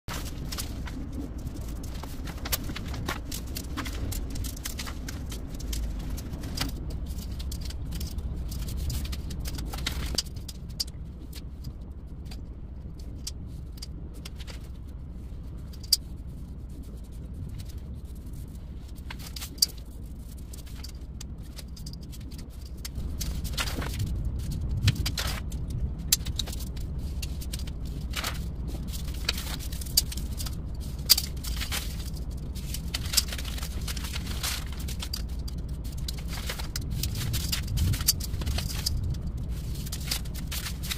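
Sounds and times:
paper sheets rustling: 0:00.1 - 0:10.2, 0:23.0 - 0:40.9
steady low hum: 0:00.1 - 0:40.9.

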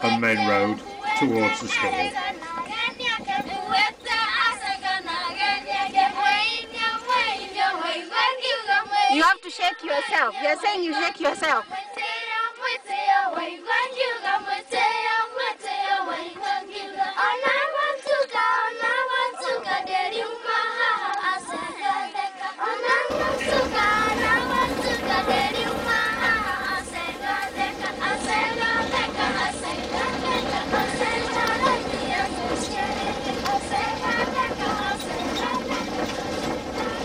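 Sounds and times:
vehicle rumbling on rough road: 0:00.0 - 0:07.8, 0:23.1 - 0:37.0
children singing: 0:00.0 - 0:08.9, 0:18.0 - 0:37.0.

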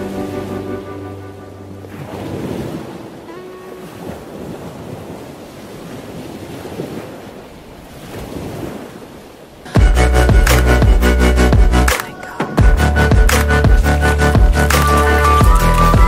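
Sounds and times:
ocean surf breaking on beach: 0:00.0 - 0:09.8.

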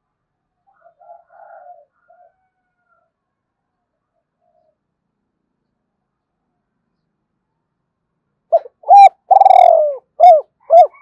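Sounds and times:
dove cooing: 0:08.5 - 0:11.0.

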